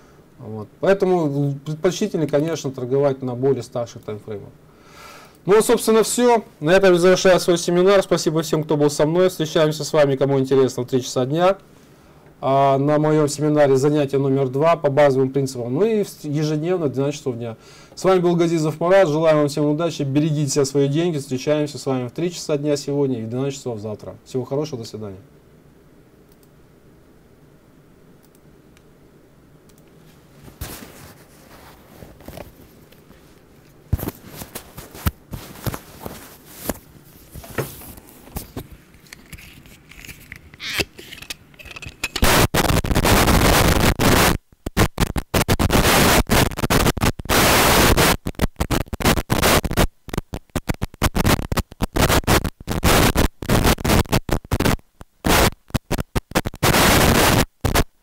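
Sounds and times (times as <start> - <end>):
loud harsh static: 0.0 - 25.2, 30.0 - 58.0
faint hiss: 0.0 - 39.4, 42.2 - 58.0
scratchy crackles and clicks: 29.7 - 58.0.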